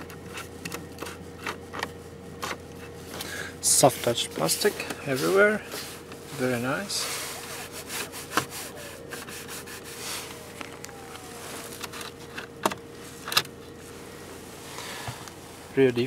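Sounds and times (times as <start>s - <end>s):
plastic air vent rubbing and scraping: 0.0s - 3.1s, 4.1s - 13.8s
faint hum: 0.0s - 16.0s.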